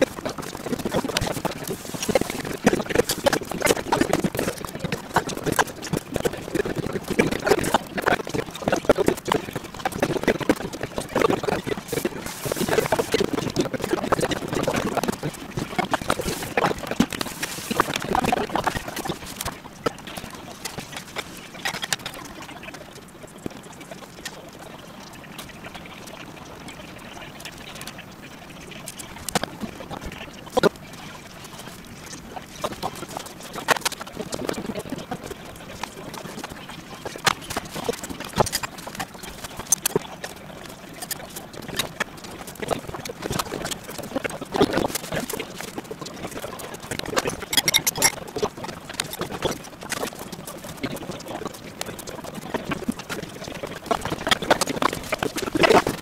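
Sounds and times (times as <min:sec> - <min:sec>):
busy kitchen hiss: 0:11.8 - 0:13.2
squeaky chirp-like snatches: 0:47.2 - 0:48.2
bowls and chopsticks clinking: 0:47.4 - 0:48.2.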